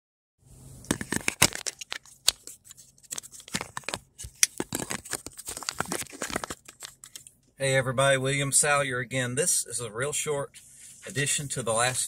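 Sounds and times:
phone handling noise: 0.8 - 2.5.

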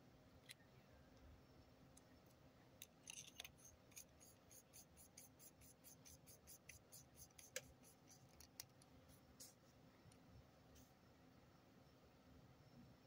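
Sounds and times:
pen nib scratchy ticking: 3.4 - 8.8.

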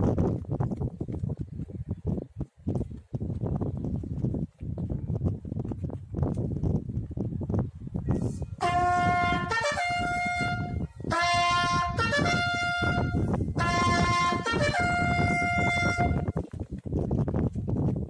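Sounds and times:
solo trumpet playing slow call: 8.6 - 16.3.

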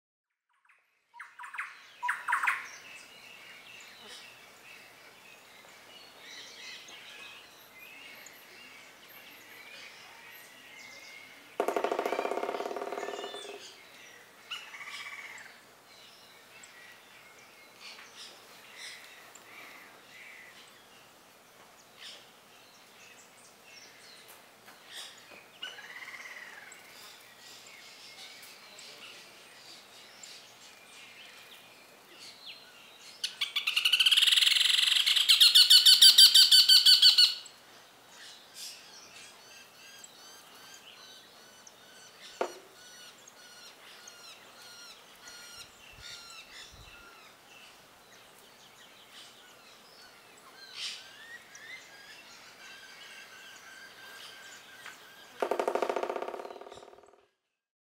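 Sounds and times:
woodpecker calling ringing notes: 11.6 - 13.8, 33.2 - 37.5, 55.2 - 57.2.

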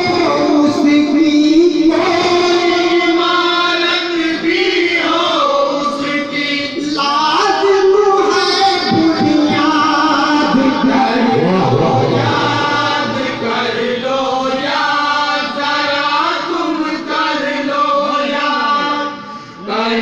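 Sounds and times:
man singing over loudspeaker: 0.0 - 20.0
steady low drone: 10.3 - 14.7.

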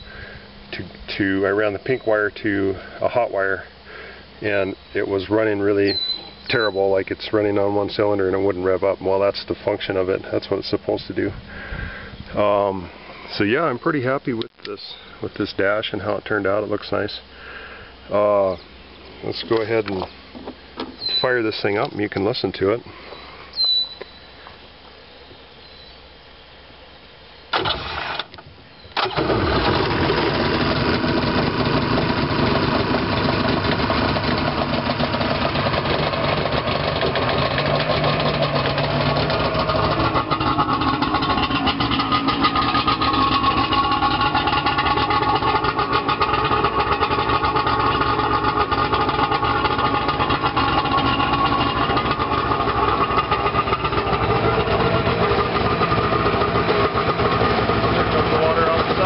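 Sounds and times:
engine starting and running: 27.5 - 59.0.

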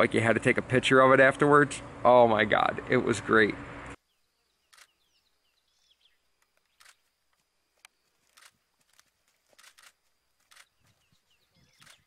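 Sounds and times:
faint bird chirps: 4.0 - 7.2, 10.5 - 12.0
faint ticks: 6.4 - 11.0.

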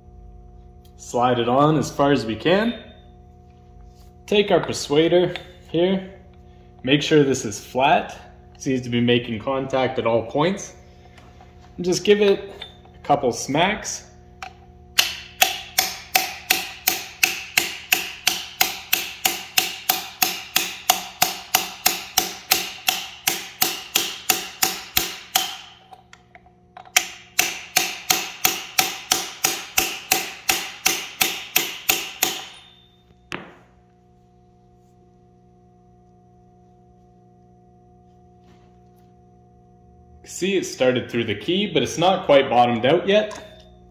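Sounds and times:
hammer striking metal: 15.0 - 25.9, 26.9 - 33.6.

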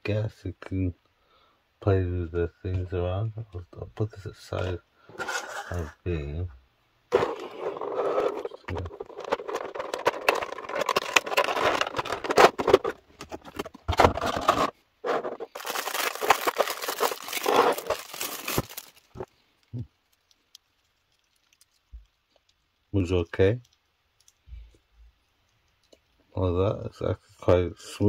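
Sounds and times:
plastic tray crinkling and crackling: 7.1 - 22.8
small plastic clicks: 23.6 - 26.2.

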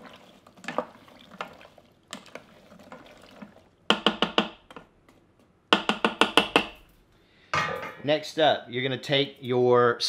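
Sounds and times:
peanuts sloshing in water: 0.0 - 3.9.

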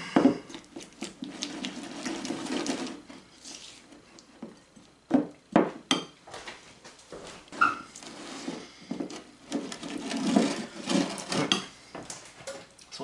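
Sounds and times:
utensils scraping in a bowl: 0.8 - 3.9, 7.6 - 11.7.

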